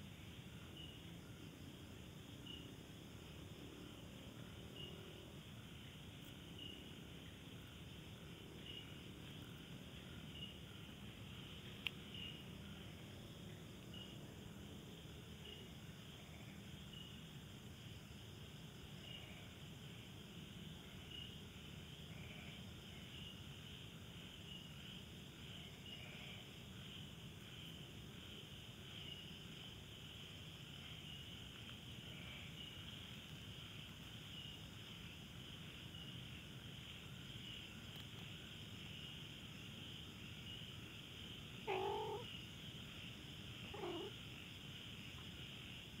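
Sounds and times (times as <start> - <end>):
crickets trilling: 0.0 - 46.0
night insects chirring: 0.0 - 46.0
cat meowing: 41.7 - 42.3, 43.7 - 44.1.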